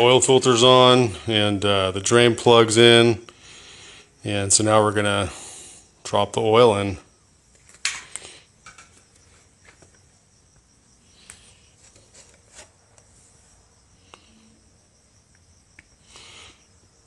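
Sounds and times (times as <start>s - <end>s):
low steady background noise: 0.0s - 17.0s
plastic funnel and bottle clicking: 7.6s - 9.0s.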